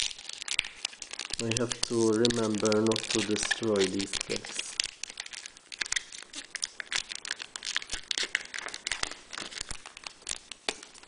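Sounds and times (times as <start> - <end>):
foil wrapper crinkling and tearing: 0.0 - 11.0.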